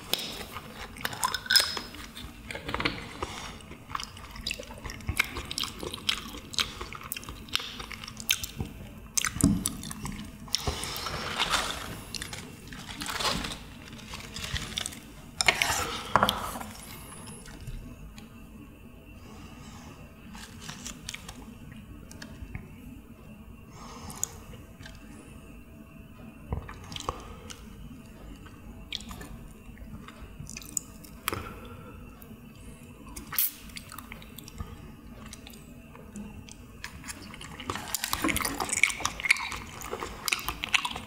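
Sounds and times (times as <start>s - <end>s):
chewing: 0.0s - 17.7s, 33.1s - 41.0s
lettuce leaves rustling: 10.6s - 15.1s.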